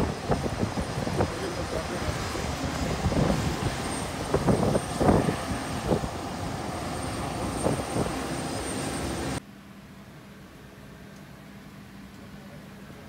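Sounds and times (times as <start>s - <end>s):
jet engine roaring: 0.0s - 9.4s.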